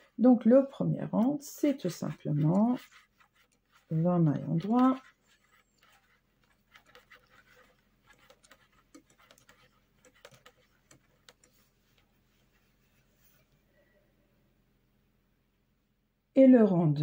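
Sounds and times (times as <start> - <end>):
knitting needles clicking: 1.2 - 12.1.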